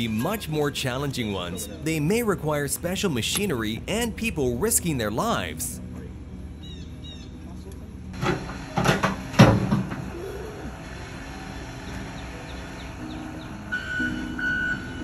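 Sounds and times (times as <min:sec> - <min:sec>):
loader engine running: 0:07.8 - 0:15.0
reversing beep: 0:13.7 - 0:15.0.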